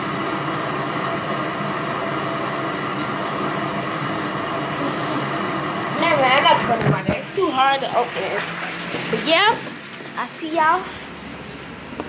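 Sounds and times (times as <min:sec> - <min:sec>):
tap water pouring into bathtub: 0:06.9 - 0:10.0.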